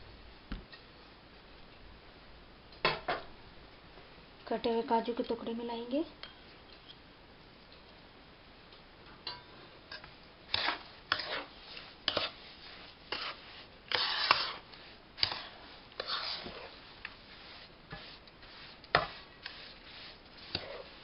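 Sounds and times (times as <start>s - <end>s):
spoon scraping in pan: 9.3s - 21.0s.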